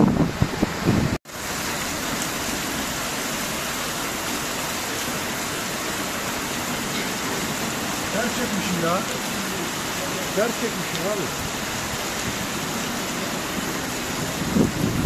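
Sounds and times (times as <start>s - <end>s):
wind buffeting microphone: 0.0s - 1.2s, 11.3s - 15.0s
heavy rain downpour: 0.0s - 15.0s.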